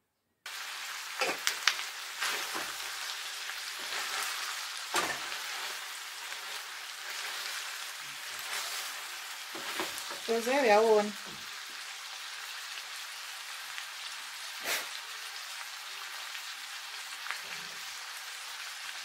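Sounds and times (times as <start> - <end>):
meat and vegetables sizzling: 0.5 - 19.0
wooden spoon scraping a pan: 1.2 - 11.0.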